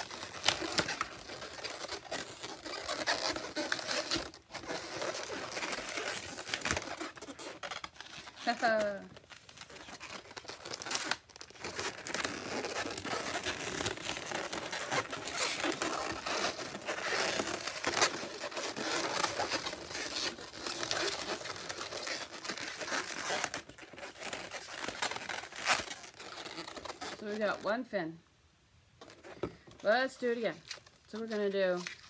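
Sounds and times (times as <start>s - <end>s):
balloons squeaking and rubbing: 0.0s - 27.9s, 29.0s - 32.0s.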